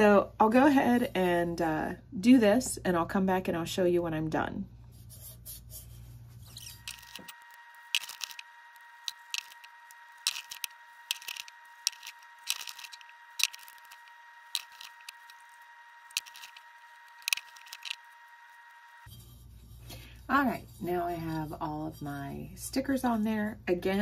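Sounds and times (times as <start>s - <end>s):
vinyl sticker sheet crackling: 5.8s - 19.1s.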